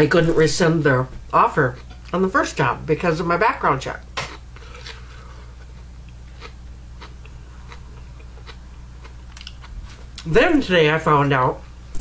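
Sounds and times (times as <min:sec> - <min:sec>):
steady low hum: 0:00.0 - 0:12.0
person chewing food: 0:04.2 - 0:10.3
soft mouth clicks: 0:09.3 - 0:09.6.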